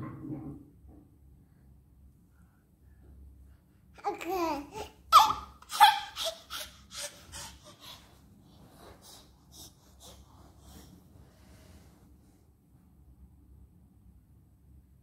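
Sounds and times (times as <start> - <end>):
baby laughing and squealing: 4.0 - 8.1.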